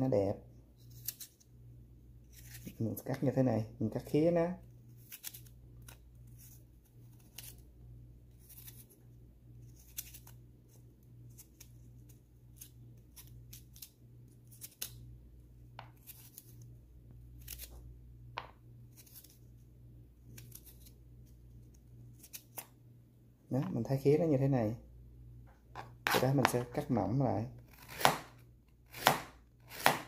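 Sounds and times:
knife cutting carrot: 0:05.0 - 0:07.6, 0:09.6 - 0:10.4, 0:15.7 - 0:16.6, 0:17.3 - 0:19.5, 0:20.2 - 0:22.8, 0:25.8 - 0:27.0, 0:27.6 - 0:30.0.

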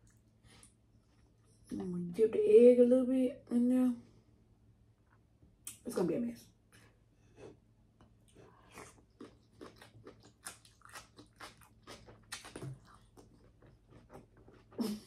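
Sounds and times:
person chewing food: 0:06.7 - 0:15.0.

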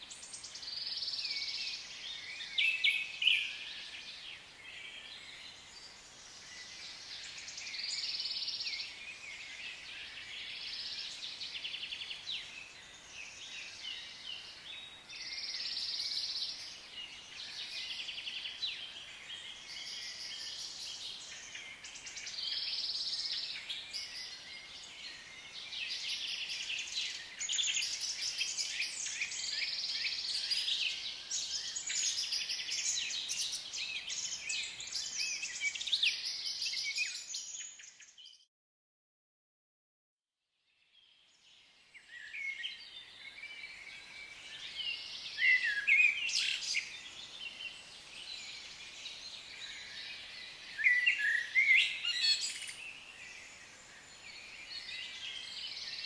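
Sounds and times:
birds and insects chirping: 0:00.1 - 0:38.2.

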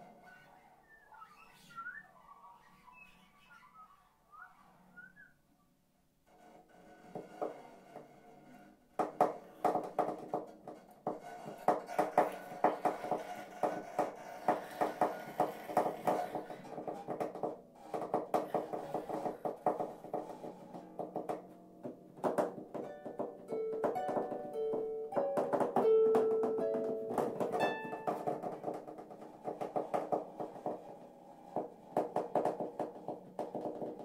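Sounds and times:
harp plucked notes: 0:22.8 - 0:28.2.

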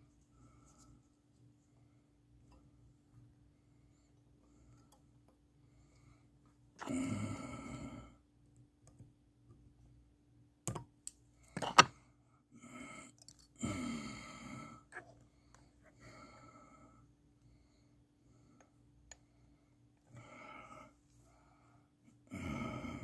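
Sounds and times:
man sighing: 0:06.8 - 0:08.1
soft breath: 0:13.7 - 0:23.0.

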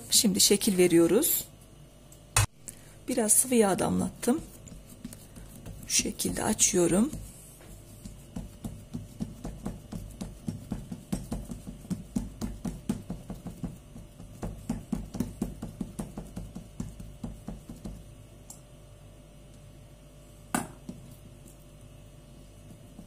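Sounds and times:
fingertips patting dough on board: 0:04.0 - 0:18.2, 0:22.4 - 0:23.0.

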